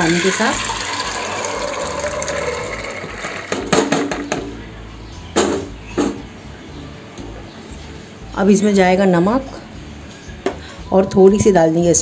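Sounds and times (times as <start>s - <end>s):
peas and water pouring into pot: 0.0s - 3.7s
sharp knocks: 3.5s - 4.6s.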